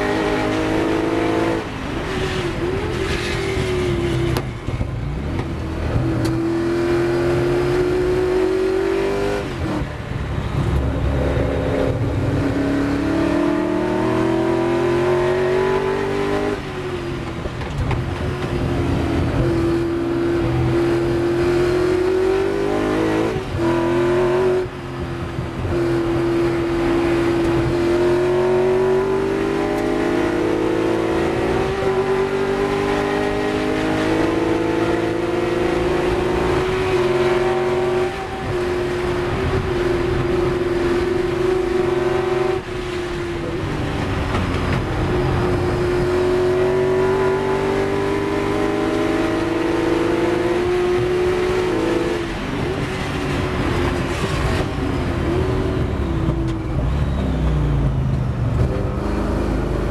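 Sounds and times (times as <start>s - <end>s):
racing engine accelerating: 0.0s - 9.9s, 10.5s - 16.6s, 25.6s - 59.9s.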